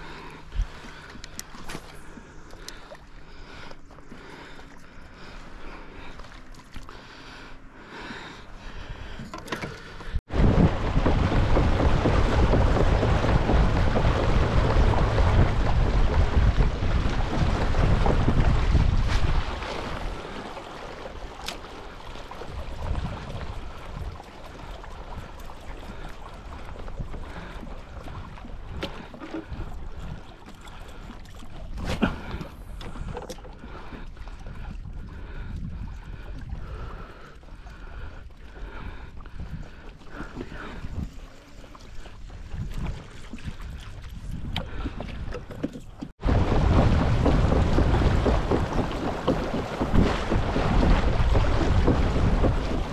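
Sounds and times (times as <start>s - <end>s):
water rushing along hull: 0.0s - 52.9s
wind buffeting microphone: 10.2s - 20.5s, 22.4s - 30.4s, 34.0s - 37.1s, 37.8s - 41.3s, 42.2s - 45.5s, 46.2s - 52.9s.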